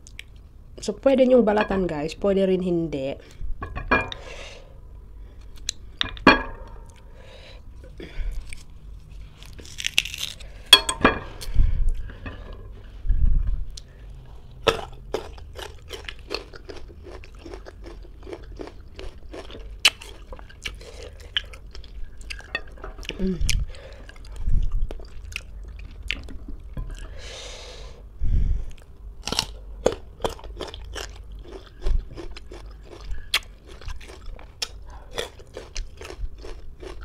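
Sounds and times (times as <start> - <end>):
crunching of fruit being chewed: 7.8 - 10.7, 13.7 - 27.2, 28.7 - 37.0.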